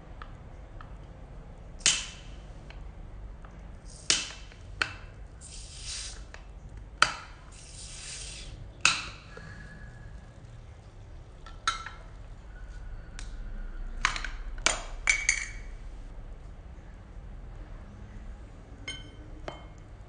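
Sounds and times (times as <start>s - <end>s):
bottle hissing: 5.4s - 6.3s, 7.5s - 8.6s.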